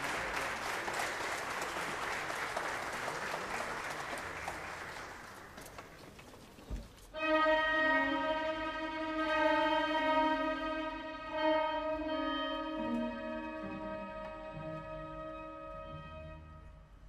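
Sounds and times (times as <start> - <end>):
audience applauding: 0.0 - 6.2
orchestra strings sustained notes: 7.2 - 17.0.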